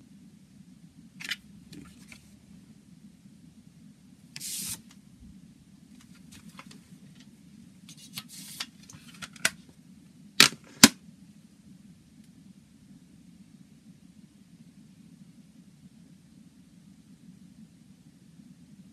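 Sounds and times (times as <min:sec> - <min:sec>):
steady low hum: 0:00.0 - 0:18.9
paper rustling and sliding: 0:01.2 - 0:02.4, 0:04.4 - 0:04.9, 0:06.0 - 0:07.3, 0:07.9 - 0:09.6.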